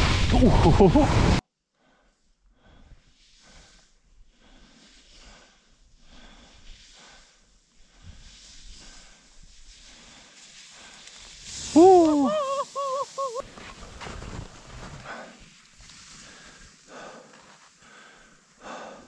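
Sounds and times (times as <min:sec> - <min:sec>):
faint quick breathing: 0:16.2 - 0:19.0.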